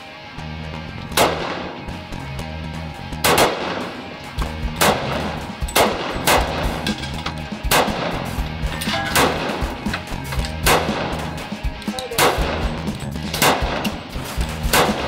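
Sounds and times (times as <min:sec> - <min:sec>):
music bass line: 0:00.3 - 0:03.4, 0:04.3 - 0:15.0
pistol shots: 0:01.1 - 0:01.9, 0:03.2 - 0:06.9, 0:07.6 - 0:08.4, 0:09.1 - 0:09.9, 0:10.5 - 0:11.5, 0:12.1 - 0:15.0.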